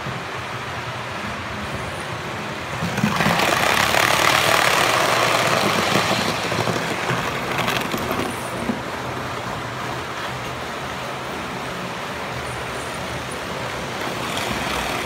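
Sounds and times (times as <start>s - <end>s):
model train rumbling on track: 0.0s - 15.0s.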